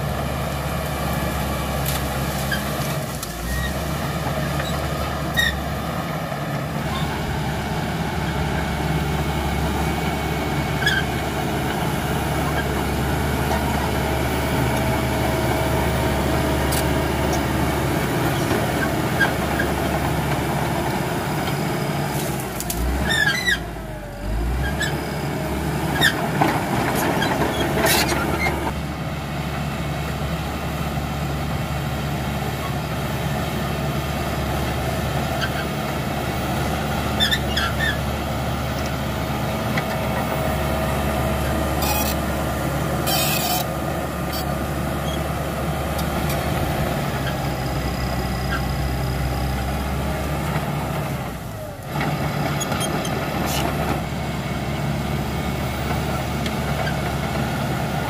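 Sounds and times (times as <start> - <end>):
diesel engine running under load: 0.0 - 58.0
steel tracks squeaking and clanking: 2.2 - 5.8, 6.8 - 7.4, 10.6 - 14.0, 16.4 - 28.8, 35.2 - 35.9, 36.9 - 49.4, 52.1 - 54.1.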